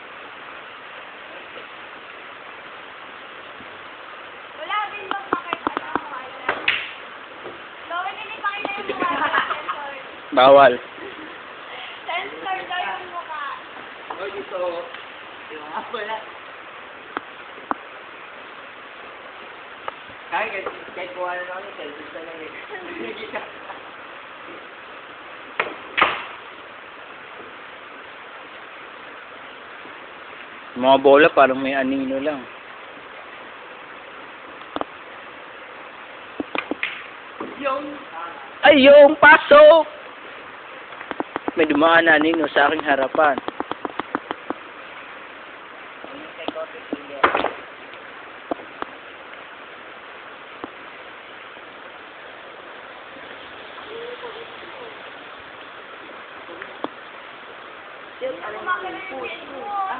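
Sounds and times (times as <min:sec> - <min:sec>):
steady hiss: 0:00.0 - 0:59.9
cue striking billiard ball: 0:25.6 - 0:26.4.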